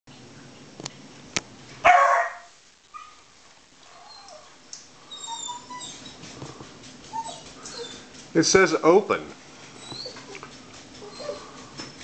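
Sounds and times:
dog barking: 1.8 - 3.2.

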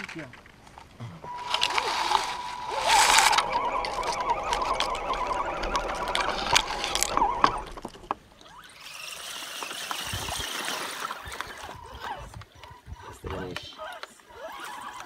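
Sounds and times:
clicks rolling over gravel: 0.0 - 8.2
toy truck motor whining: 1.3 - 10.5, 11.2 - 15.0
water trickling and splashing: 5.7 - 12.5.

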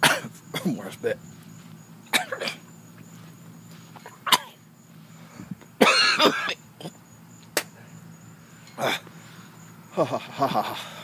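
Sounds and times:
man coughing and hacking: 0.0 - 0.9, 2.1 - 2.7, 4.0 - 4.6, 5.8 - 7.0.

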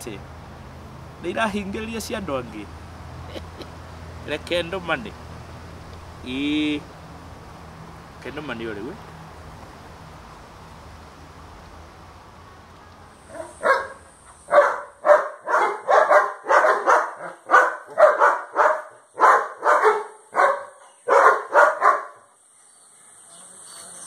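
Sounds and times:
dog barking: 13.3 - 22.2.

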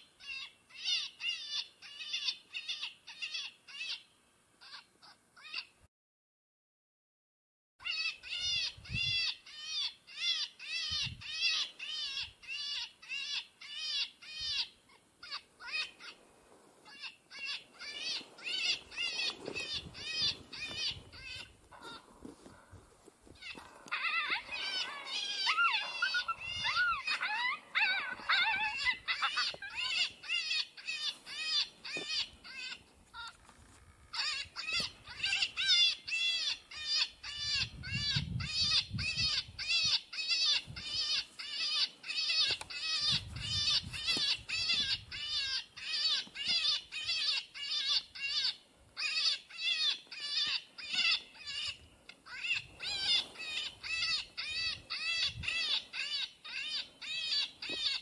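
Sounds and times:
electronic animal distress cries: 16.9 - 22.0, 23.4 - 33.3, 34.1 - 51.7, 52.3 - 58.0.

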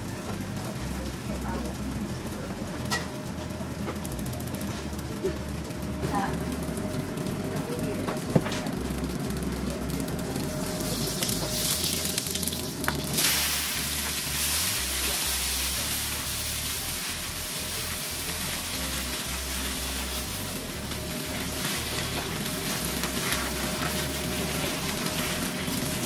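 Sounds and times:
food sizzling in hot oil: 10.3 - 26.0.

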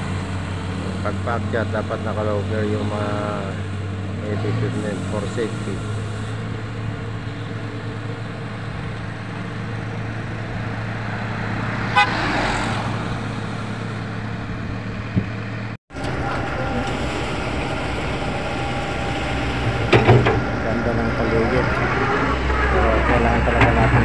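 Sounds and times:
truck engine running: 0.0 - 24.0
truck horn toot: 11.8 - 12.5.

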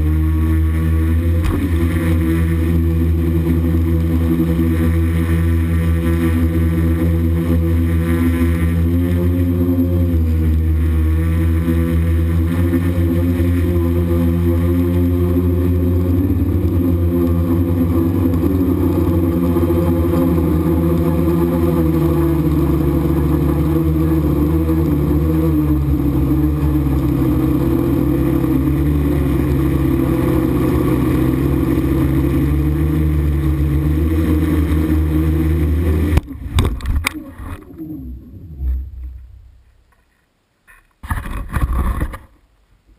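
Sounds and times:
drone propellers whirring: 0.0 - 40.1
drone knocking on gravel: 1.3 - 2.8.

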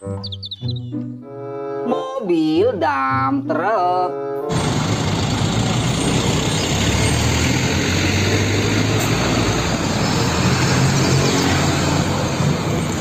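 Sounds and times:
diesel truck engine running: 4.5 - 13.0
tyre and road noise: 4.5 - 13.0.

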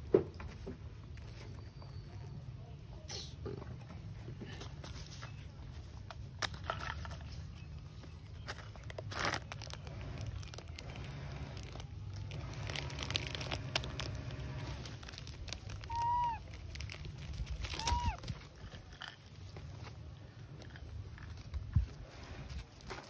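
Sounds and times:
plastic packet crinkling: 8.3 - 19.5
monkey calls: 15.8 - 16.4, 17.8 - 18.2.

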